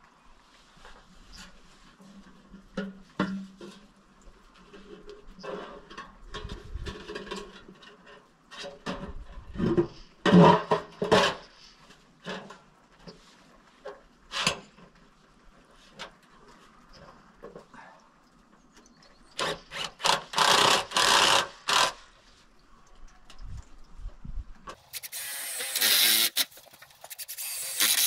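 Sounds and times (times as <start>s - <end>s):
knocks and scrapes of sheet steel: 4.9s - 13.2s.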